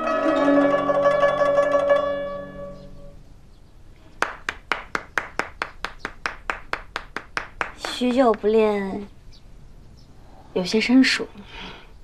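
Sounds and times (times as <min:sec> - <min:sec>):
guzheng plucked: 0:00.0 - 0:03.2
person clapping: 0:04.2 - 0:08.6.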